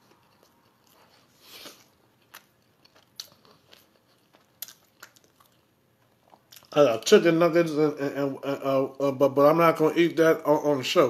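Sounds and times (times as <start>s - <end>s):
chewing with crunchy clicks: 0.0s - 6.8s.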